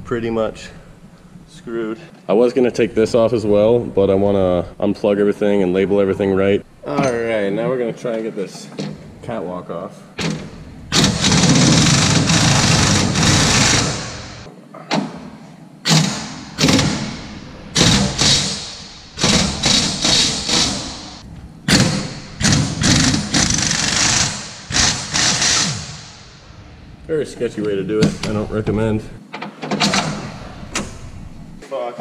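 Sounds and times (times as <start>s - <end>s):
pneumatic air hammer rattling: 10.2s - 14.5s, 15.9s - 17.2s, 17.8s - 26.2s.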